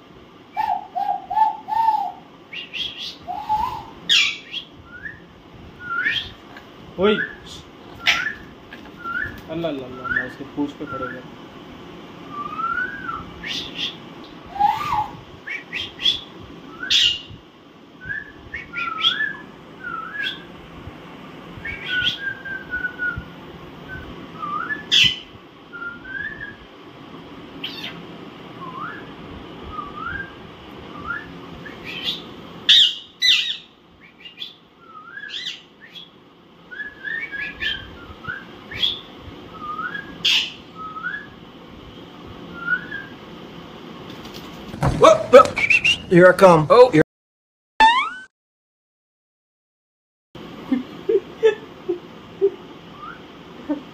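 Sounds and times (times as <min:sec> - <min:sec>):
parakeets chirping and screeching: 0:04.1 - 0:04.7, 0:07.9 - 0:08.5, 0:13.4 - 0:14.0, 0:27.6 - 0:28.0, 0:31.7 - 0:34.6, 0:40.2 - 0:40.6.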